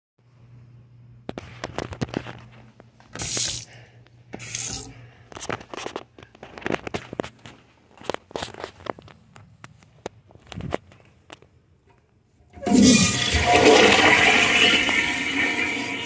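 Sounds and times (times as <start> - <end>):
short hissing bursts: 3.2 - 3.7, 4.4 - 4.9.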